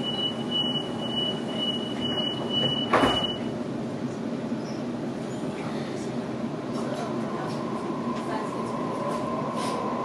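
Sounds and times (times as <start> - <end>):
door closing warning beeps: 0.0 - 3.5.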